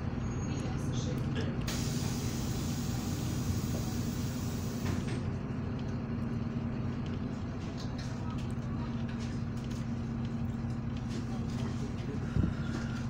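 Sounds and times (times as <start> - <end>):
bus engine running: 0.0 - 13.0
high hiss: 1.7 - 5.0.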